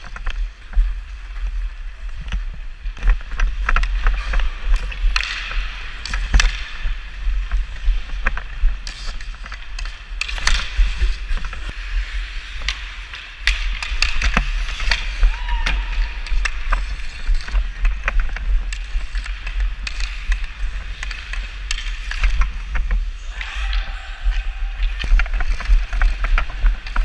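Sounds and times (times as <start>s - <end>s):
skate blades scraping ice: 0.0s - 27.0s
stick tapping puck: 3.0s - 23.0s.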